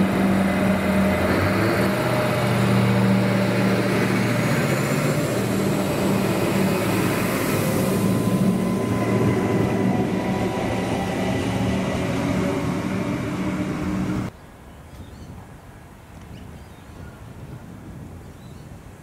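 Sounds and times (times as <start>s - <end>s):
diesel engine drone: 0.0s - 14.3s
wheel-on-rail rumble: 0.0s - 14.3s.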